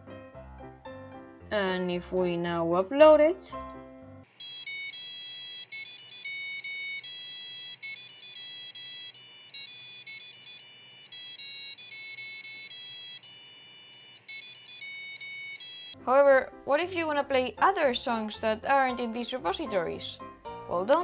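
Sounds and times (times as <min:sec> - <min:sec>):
buzzer beeping a melody: 0:04.4 - 0:16.0.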